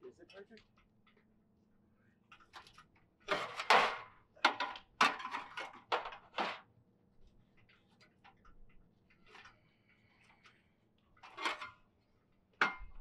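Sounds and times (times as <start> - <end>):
metal ladder scraping against wall: 3.3 - 4.0.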